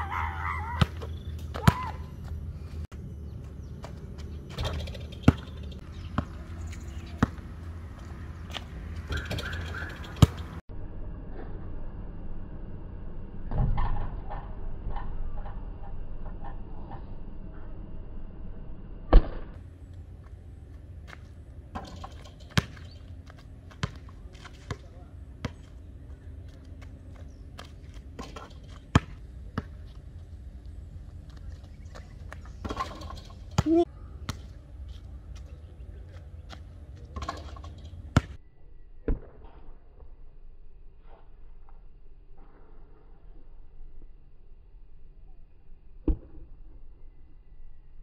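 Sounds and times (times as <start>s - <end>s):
basketball bouncing on concrete: 3.8s - 10.6s, 21.8s - 25.8s, 26.5s - 30.0s, 38.2s - 38.4s.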